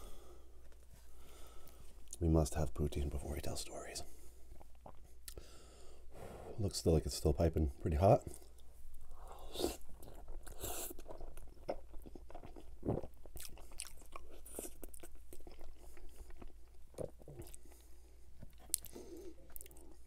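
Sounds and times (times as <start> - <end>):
wet chewing mouth sounds: 4.5 - 5.5, 8.2 - 20.0.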